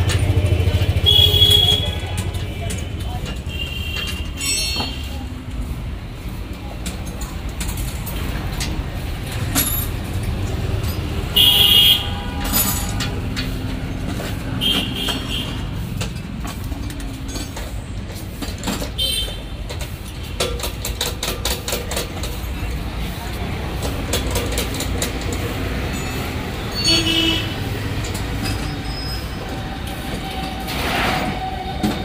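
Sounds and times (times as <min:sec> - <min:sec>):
traffic rumble: 0:00.0 - 0:32.0
vehicle horn honking: 0:00.3 - 0:02.2, 0:11.3 - 0:12.5, 0:26.7 - 0:27.6.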